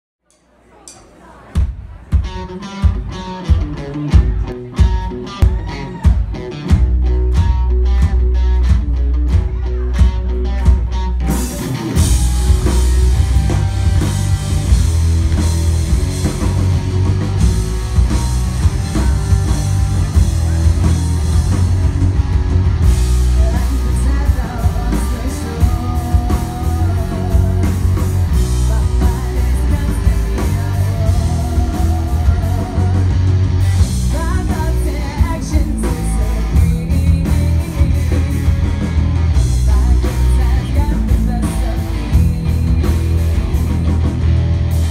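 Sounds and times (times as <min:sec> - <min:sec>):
drum kit: 0:00.9 - 0:44.9
bass guitar: 0:01.6 - 0:44.9
electric guitars: 0:02.1 - 0:44.9
lead vocal singing: 0:23.1 - 0:38.6, 0:39.5 - 0:43.4.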